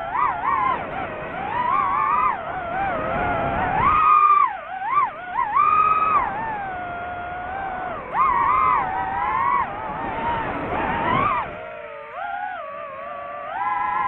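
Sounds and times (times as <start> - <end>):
drone propellers whining: 0.0 - 14.0.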